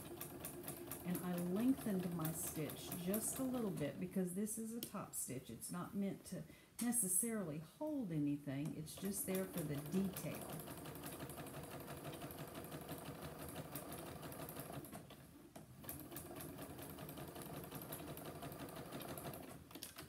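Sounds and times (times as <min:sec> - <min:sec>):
sewing machine stitching: 0:00.0 - 0:03.8, 0:09.0 - 0:20.0.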